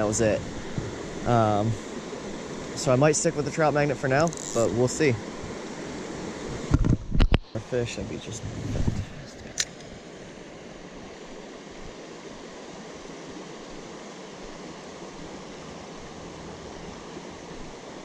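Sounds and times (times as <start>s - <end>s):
creek water running: 0.0s - 18.0s
sharp click: 9.4s - 9.9s.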